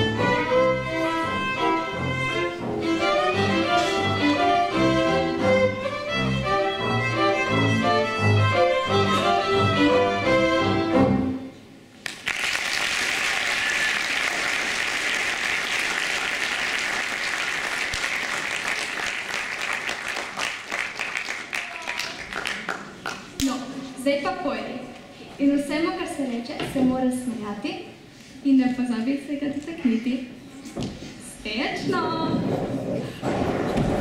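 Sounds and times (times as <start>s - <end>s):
string ensemble playing: 0.0s - 11.7s
audience applauding: 12.0s - 23.4s.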